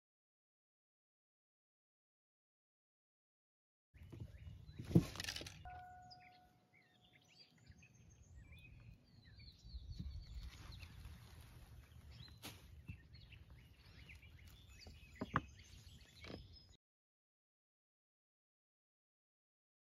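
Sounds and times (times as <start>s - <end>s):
birds chirping: 4.0s - 16.8s.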